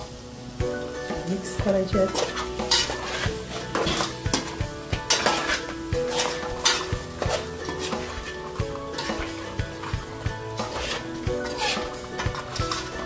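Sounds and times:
metal spoon scraping cooking pot: 2.1s - 13.0s.

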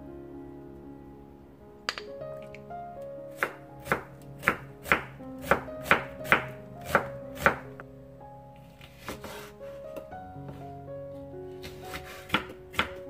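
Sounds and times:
knife chopping onion on wooden board: 3.4s - 7.6s, 11.6s - 13.0s.

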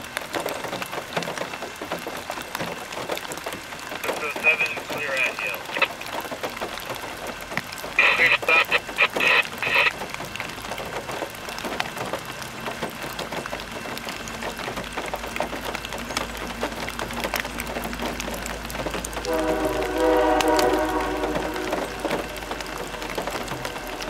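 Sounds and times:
wheels clicking on rails: 10.0s - 24.0s
train rumbling by: 17.6s - 24.0s
locomotive air horn: 19.2s - 24.0s.

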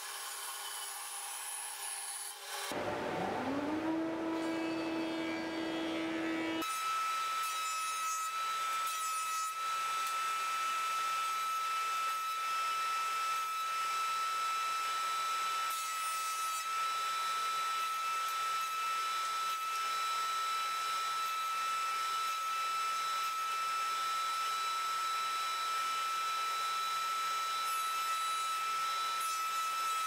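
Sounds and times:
jointer machine humming and whining: 2.7s - 7.4s.

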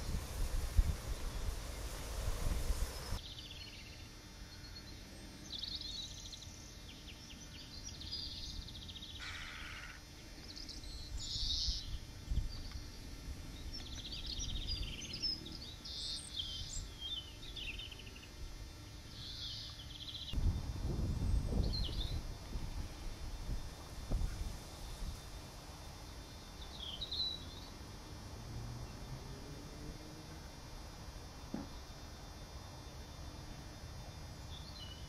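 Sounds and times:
songbirds singing: 0.0s - 18.4s, 19.0s - 20.4s, 21.2s - 23.0s, 25.8s - 28.2s, 32.8s - 35.0s.

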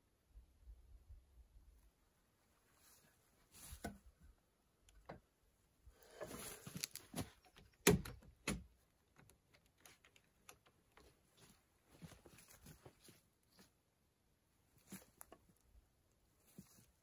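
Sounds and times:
log rustling and scraping: 2.6s - 4.2s, 6.0s - 7.8s, 9.5s - 13.8s, 14.7s - 17.0s.

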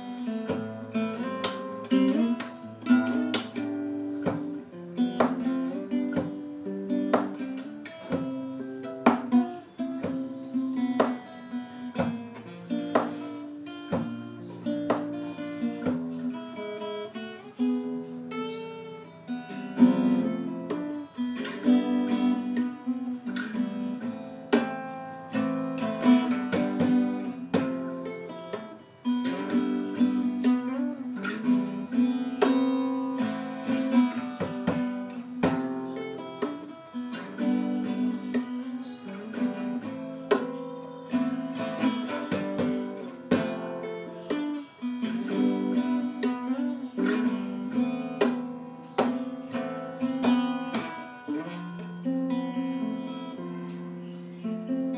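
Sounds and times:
fingerstyle acoustic guitar: 0.0s - 54.9s
percussive hits on guitar: 0.4s - 16.2s, 32.4s - 36.7s, 40.2s - 40.7s, 48.1s - 51.1s.

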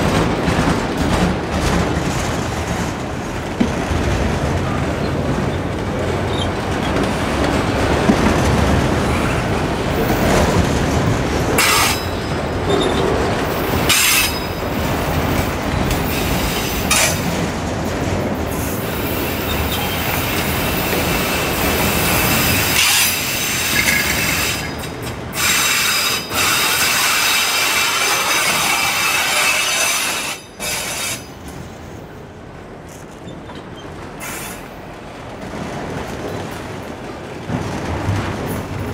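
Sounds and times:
train wheels clattering: 0.0s - 31.7s
high wheel squeal: 19.1s - 24.8s.

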